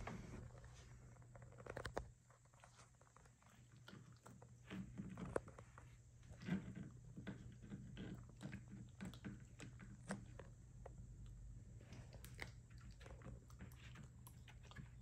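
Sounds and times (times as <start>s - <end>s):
puppy teeth crunching a chew: 7.2s - 15.0s.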